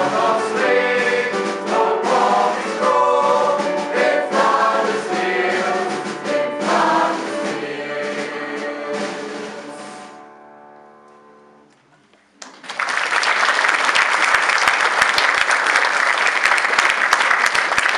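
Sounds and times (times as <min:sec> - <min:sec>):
mixed choir singing: 0:00.0 - 0:10.1
audience applause: 0:12.4 - 0:17.9.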